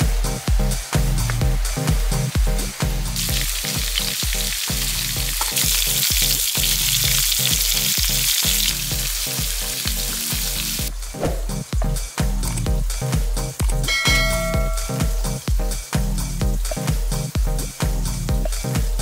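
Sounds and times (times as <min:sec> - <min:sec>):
background music with a beat: 0:00.0 - 0:19.0
meat sizzling in a pan: 0:03.2 - 0:10.9.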